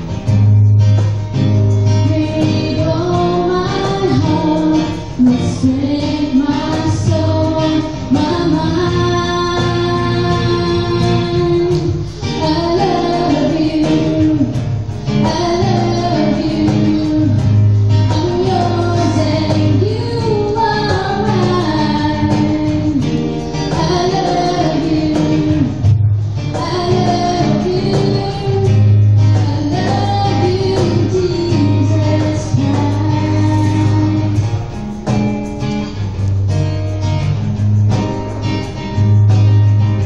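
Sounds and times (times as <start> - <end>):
acoustic guitar: 0.0 - 40.0
female vocal group singing: 2.0 - 14.6, 15.2 - 17.5, 18.1 - 23.0, 23.7 - 25.8, 26.6 - 34.5.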